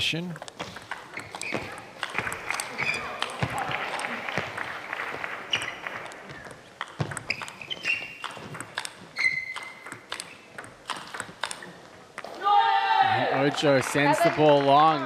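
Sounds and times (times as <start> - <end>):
table tennis ball tapping: 0.4 - 4.7, 5.6 - 12.3
shoe squeaks: 0.6 - 3.5, 5.5 - 10.8.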